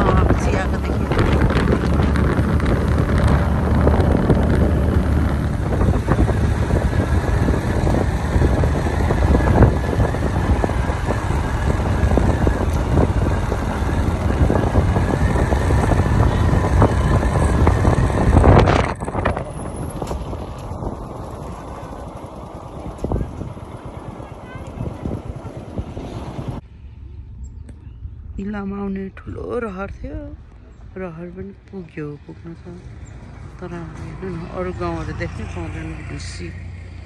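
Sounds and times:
motorbike engine running: 0.0 - 26.6
wind buffeting microphone: 0.0 - 37.0.

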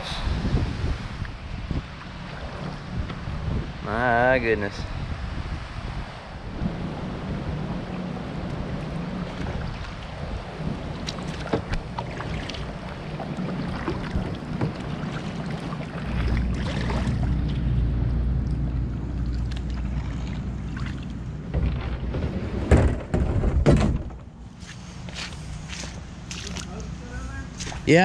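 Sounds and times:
paddle splashing through water: 1.1 - 3.4, 6.6 - 23.5, 24.5 - 26.8.

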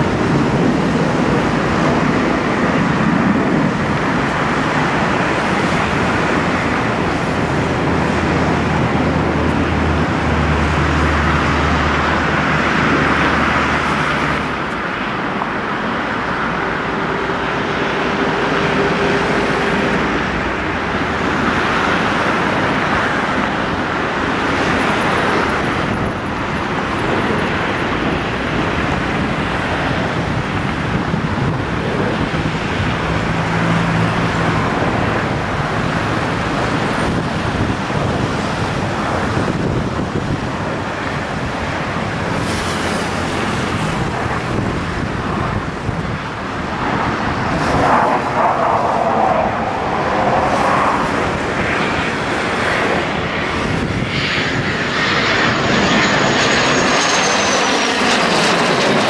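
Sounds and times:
jet engine rush: 0.0 - 59.0.

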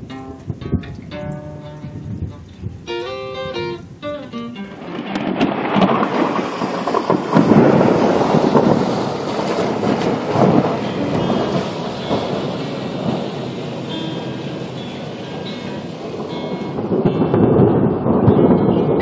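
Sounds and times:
guitar notes: 0.0 - 6.0, 9.8 - 19.0
heavy downpour: 0.0 - 19.0
thunder rumbling: 2.0 - 19.0.

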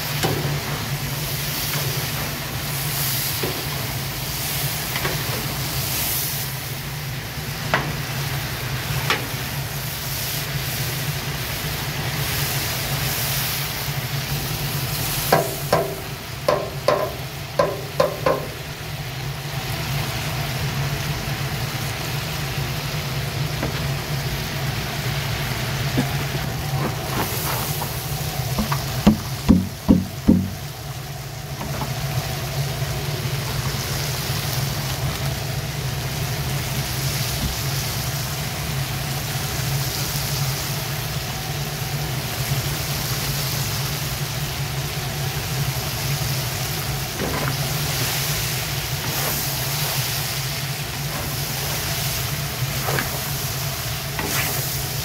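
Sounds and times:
low steady rumble: 0.0 - 55.0
meat sizzling in hot oil: 0.0 - 55.0
sharp knocks: 15.3 - 18.6, 28.6 - 30.6.

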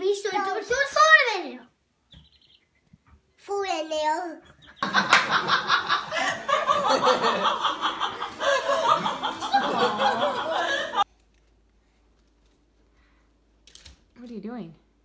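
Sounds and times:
people laughing: 4.8 - 11.1.

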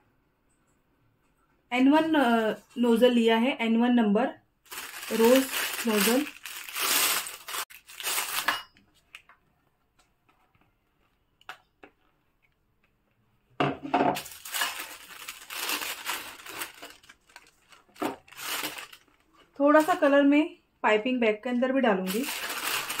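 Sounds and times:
piping bag crinkling: 4.7 - 8.6, 14.2 - 20.1, 22.0 - 23.0.

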